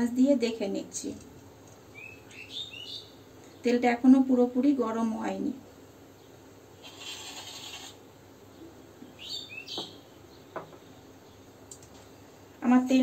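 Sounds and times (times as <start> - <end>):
bird chirping: 1.9 - 3.6, 8.5 - 11.6
faint hiss: 6.1 - 8.5
hissy rustle: 6.8 - 8.0.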